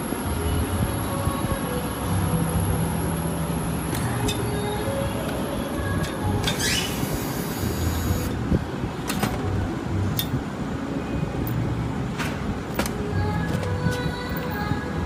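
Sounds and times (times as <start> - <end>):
power drill motor whine: 6.6 - 8.3.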